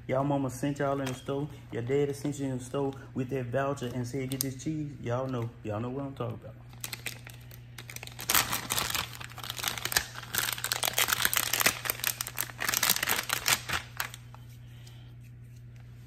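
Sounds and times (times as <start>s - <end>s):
plastic wrapping crinkling: 6.7s - 14.5s.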